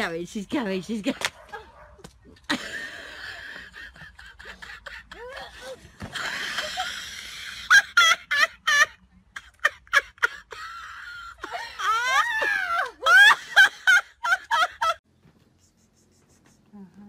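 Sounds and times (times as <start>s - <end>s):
woman shrieking with laughter: 4.5s - 5.9s, 10.2s - 15.0s.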